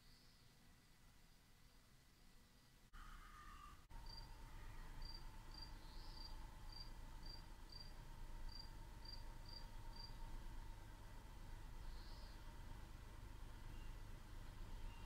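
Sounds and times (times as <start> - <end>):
faint steady hum: 0.0 - 15.0
insect chirping: 4.0 - 10.2, 11.9 - 12.4.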